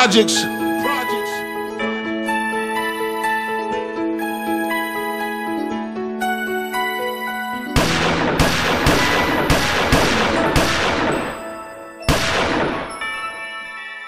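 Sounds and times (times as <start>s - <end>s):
song music: 0.0s - 13.7s
gunshot-like bangs with ringing tail: 7.8s - 13.4s.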